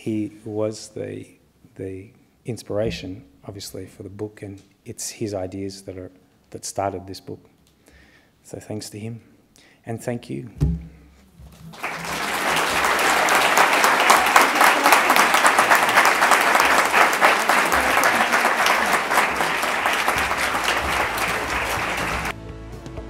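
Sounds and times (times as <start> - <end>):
audience applauding: 11.5 - 22.4.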